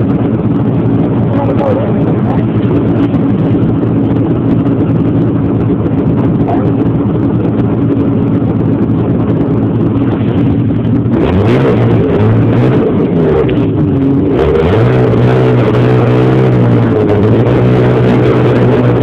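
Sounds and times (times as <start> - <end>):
snowmobile engine running: 0.0 - 19.0.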